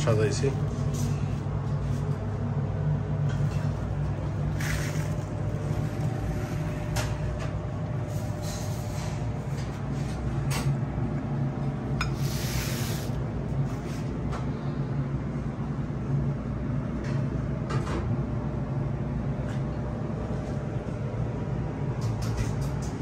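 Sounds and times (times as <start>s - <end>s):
low mechanical hum: 0.0s - 23.0s
short hissing noises: 12.1s - 13.2s.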